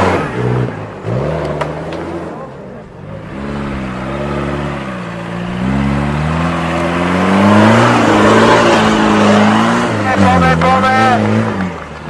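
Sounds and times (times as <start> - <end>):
car engine revving: 0.0 - 12.0.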